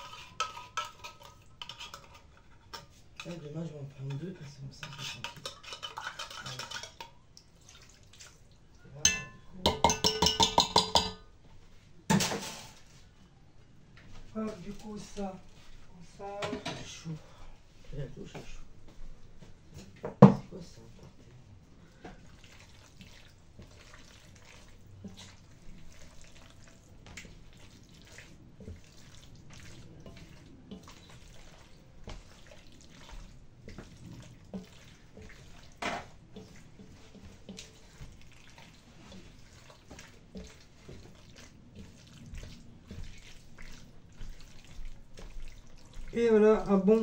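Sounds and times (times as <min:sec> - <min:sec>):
wet squelching of stirring: 0:00.0 - 0:47.0
spoon knocking against pot: 0:09.1 - 0:11.3.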